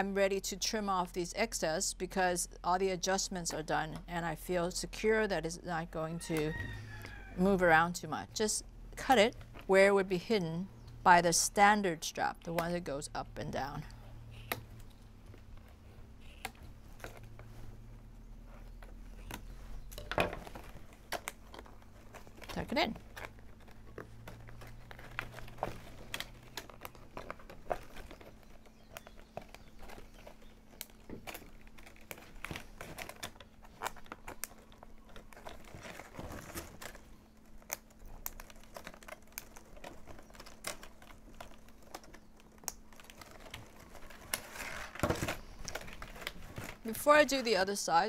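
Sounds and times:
plastic straps clicking and crinkling: 12.0s - 47.9s.

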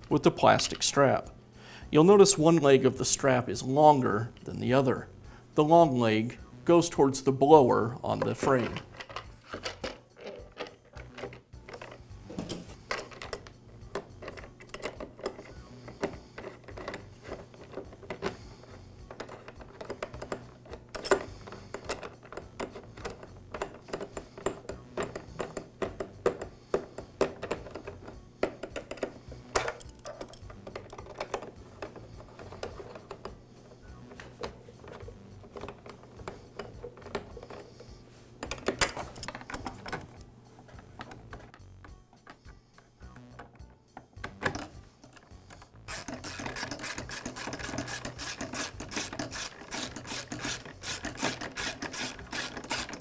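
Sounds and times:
ratchet wrench clicking: 45.3s - 53.0s.

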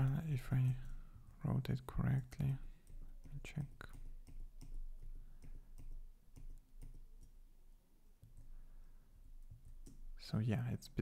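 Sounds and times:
keyboard and mouse clicks: 0.0s - 1.5s, 2.3s - 7.4s, 9.4s - 10.2s.

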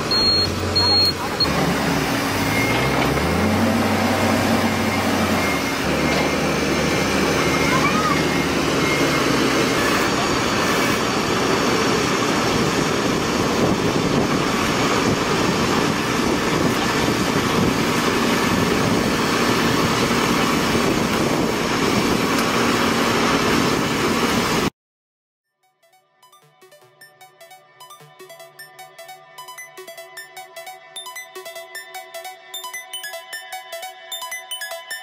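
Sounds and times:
truck engine and hydraulics running: 0.0s - 24.7s.

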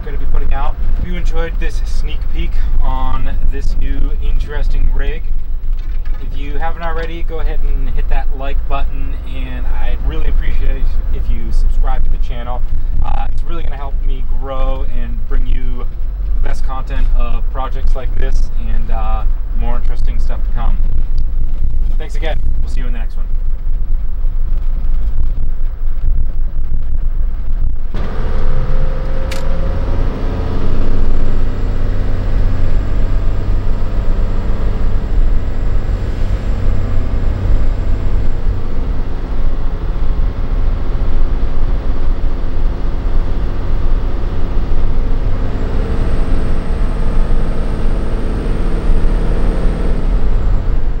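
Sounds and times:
diesel bus engine rumbling: 0.0s - 51.0s
sharp click: 29.3s - 29.5s.

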